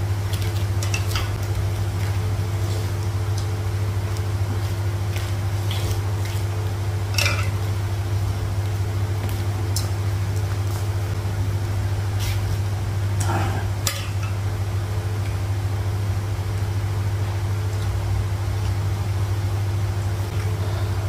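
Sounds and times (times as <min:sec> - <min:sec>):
low hum: 0:00.0 - 0:21.0
plates clicking and clinking: 0:07.1 - 0:07.6.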